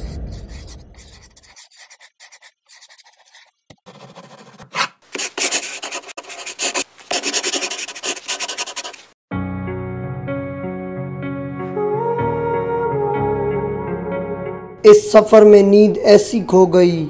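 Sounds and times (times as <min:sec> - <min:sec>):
pen scratching on paper: 0:00.0 - 0:09.2.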